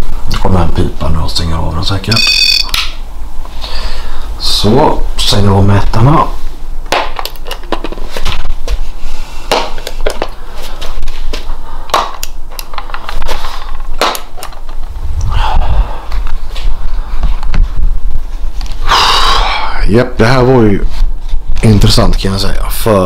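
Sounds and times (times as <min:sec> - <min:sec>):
low steady hum: 0:00.0 - 0:23.0
handheld meters clicking and knocking: 0:02.1 - 0:02.9.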